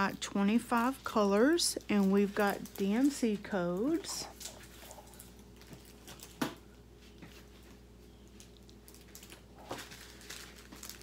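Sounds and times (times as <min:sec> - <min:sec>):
handling plastic film: 0:00.8 - 0:11.0.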